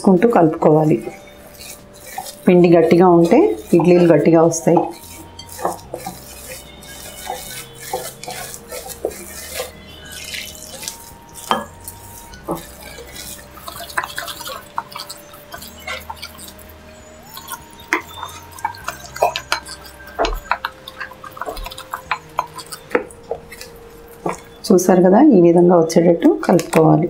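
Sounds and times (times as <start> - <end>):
spatula stirring thick batter: 0.0 - 25.1, 26.2 - 27.0
water pouring into batter: 5.1 - 23.8.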